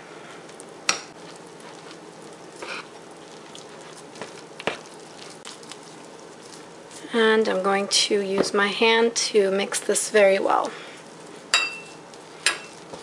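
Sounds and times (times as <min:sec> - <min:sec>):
fork scraping dough: 0:01.2 - 0:07.0.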